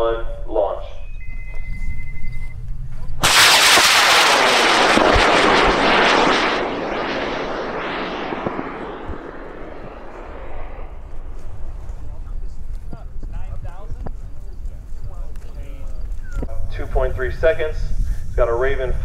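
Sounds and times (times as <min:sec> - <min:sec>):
rocket motor roaring: 0:03.2 - 0:12.3.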